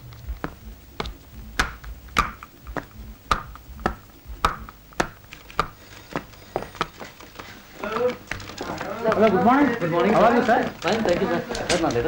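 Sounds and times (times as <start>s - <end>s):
footsteps on hard floor: 0.0s - 9.5s.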